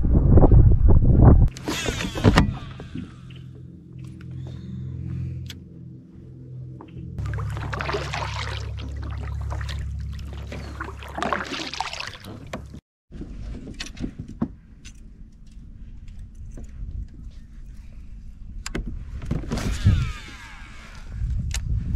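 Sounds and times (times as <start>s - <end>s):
steady low rumble: 0.0s - 13.6s
kayak paddle splashing: 7.2s - 12.8s
fishing gear clicks and knocks: 13.5s - 18.9s.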